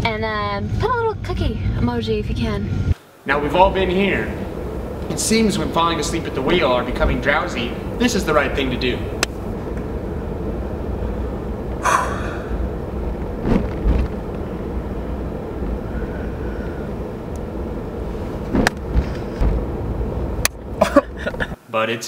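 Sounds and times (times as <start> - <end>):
road noise inside car: 0.0 - 21.6
car engine rumble: 0.0 - 21.7
loud breathy sound: 11.8 - 12.7.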